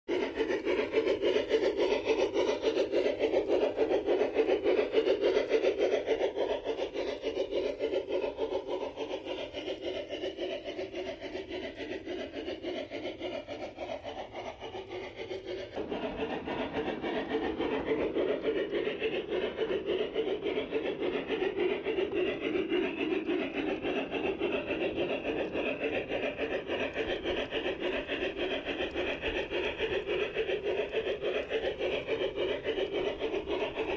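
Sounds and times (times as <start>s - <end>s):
model train rhythmic rasping: 0.1s - 33.9s.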